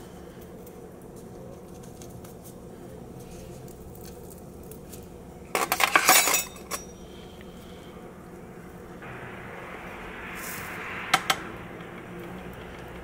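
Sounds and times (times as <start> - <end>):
cutlery clinking on metal tray: 5.6 - 6.9.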